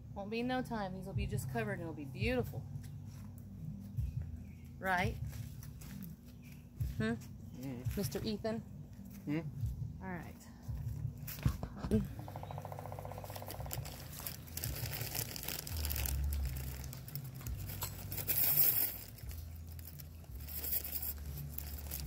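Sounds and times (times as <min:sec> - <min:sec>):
rustling and crinkling: 0:05.1 - 0:09.2, 0:10.7 - 0:22.0.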